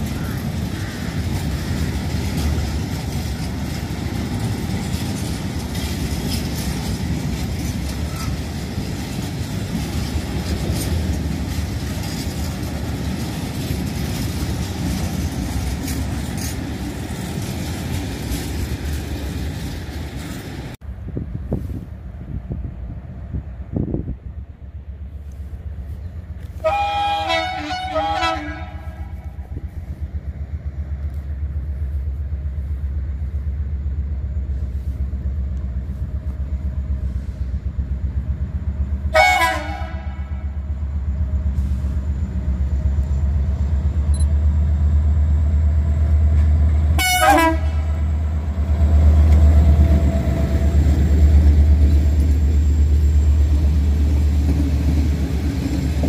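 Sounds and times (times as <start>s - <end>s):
train low rumble: 0.0s - 56.0s
train horn: 26.6s - 29.4s, 39.1s - 40.6s, 46.9s - 48.0s.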